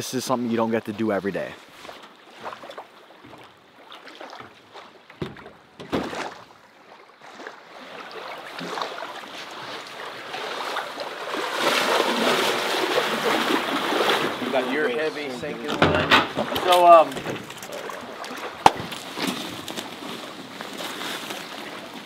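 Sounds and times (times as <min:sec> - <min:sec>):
wading through shallow water: 0:00.0 - 0:22.0
short knocks: 0:04.4 - 0:06.5.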